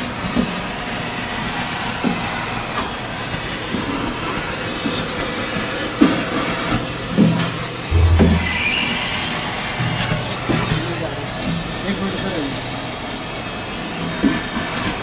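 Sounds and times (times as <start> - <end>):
industrial vacuum running: 7.9 - 14.9.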